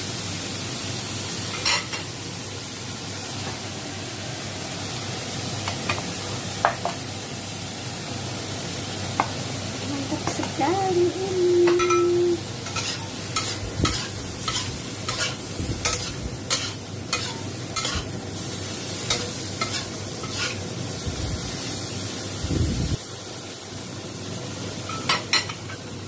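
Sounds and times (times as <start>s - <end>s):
shrimp sizzling in a wok: 0.0s - 26.0s.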